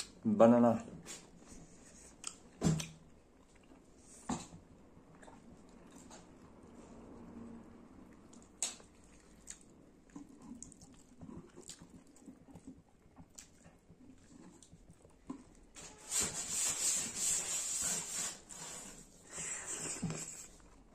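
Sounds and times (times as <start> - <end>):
person chewing food: 1.6 - 7.3, 7.9 - 15.8, 19.4 - 20.9.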